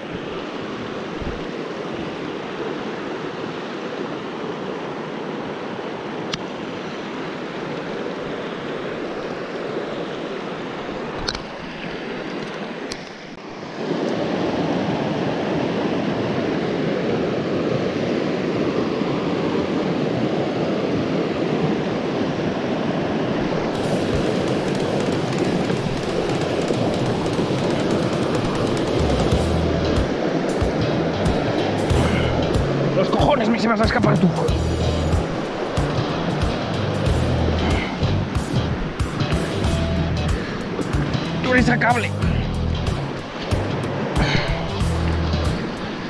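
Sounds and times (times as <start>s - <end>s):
water flowing: 23.3s - 46.0s.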